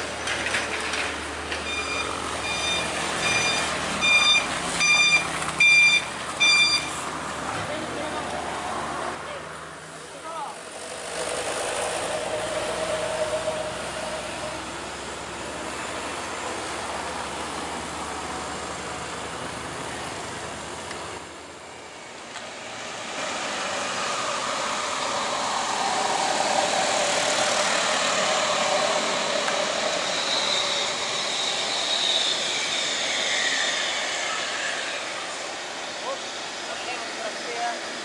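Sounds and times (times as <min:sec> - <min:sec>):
passing road traffic: 0:00.0 - 0:38.0.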